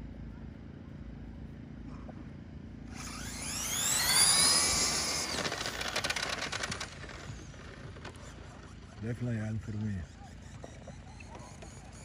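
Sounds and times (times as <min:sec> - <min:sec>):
rc car electric motor whine: 0:02.9 - 0:12.0.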